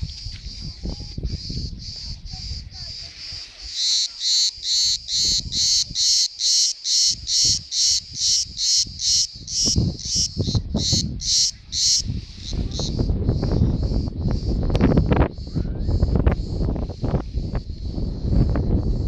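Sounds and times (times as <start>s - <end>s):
wind rumble on microphone: 0.0s - 3.7s, 4.6s - 6.2s, 7.1s - 19.0s
cicada buzzing: 0.0s - 19.0s.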